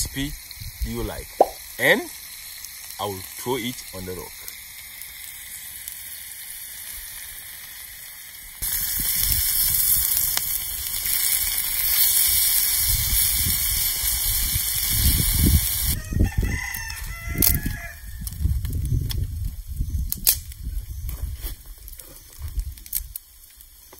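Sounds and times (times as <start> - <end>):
meat and onions sizzling: 0.0 - 20.2
rooster crowing: 16.0 - 18.3.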